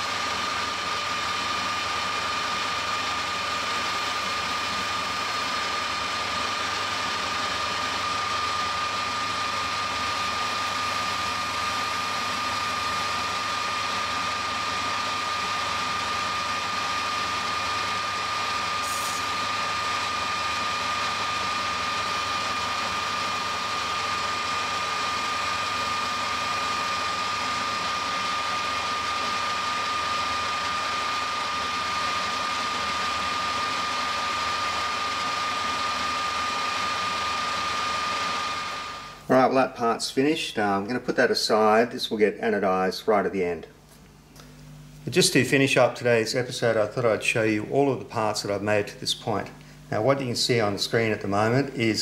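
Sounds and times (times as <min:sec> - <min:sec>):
metal lathe whining: 0:00.0 - 0:39.2.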